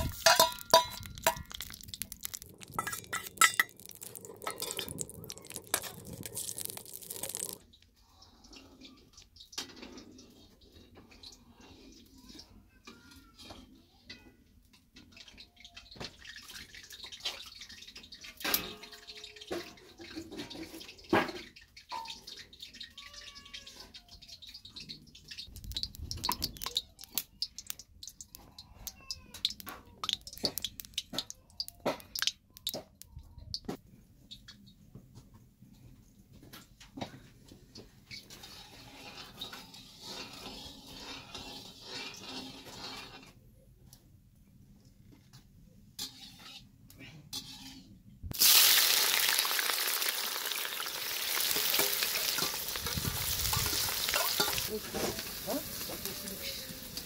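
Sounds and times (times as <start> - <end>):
metal spoon scraping a pan: 0.0 - 7.6, 24.8 - 32.8, 38.0 - 43.4, 45.9 - 48.5, 50.8 - 57.0
fat sizzling in a pan: 0.0 - 7.8, 16.2 - 32.8, 37.7 - 43.4, 47.3 - 57.0.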